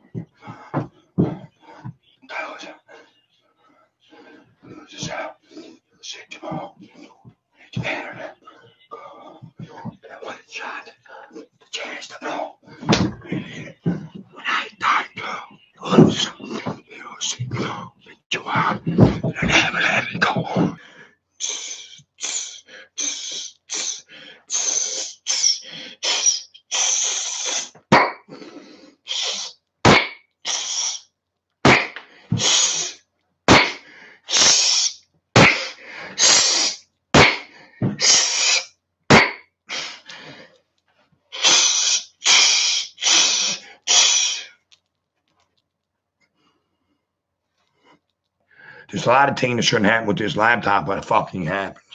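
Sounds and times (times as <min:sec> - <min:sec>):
man hissing breaths through teeth: 0:21.4 - 0:29.6, 0:30.4 - 0:31.1, 0:31.9 - 0:38.7, 0:39.7 - 0:40.4, 0:41.3 - 0:44.6.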